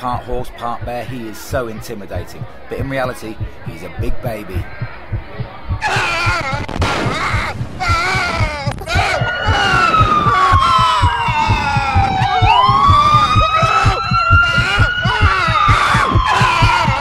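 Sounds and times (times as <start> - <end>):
rapid low thumps: 0.7 - 17.0
wailing siren-like tone: 9.0 - 17.0.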